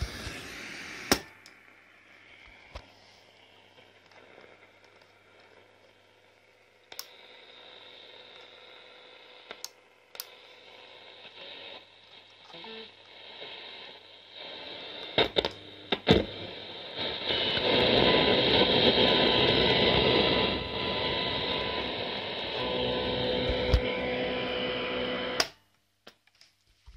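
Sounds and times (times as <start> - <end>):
faint radio hiss: 0.0 - 26.9
radio static rush: 10.9 - 25.4
radio control clicks: 23.4 - 24.0.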